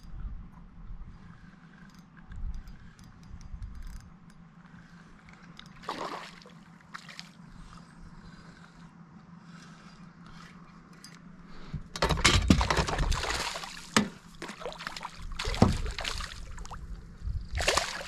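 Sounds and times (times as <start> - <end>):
fish splashing in water: 5.8 - 7.4, 12.8 - 16.8, 17.6 - 18.0.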